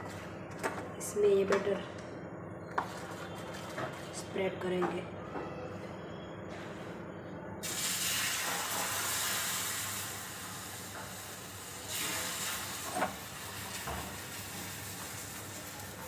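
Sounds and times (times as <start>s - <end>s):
batter sizzling on hot griddle: 7.6s - 16.0s.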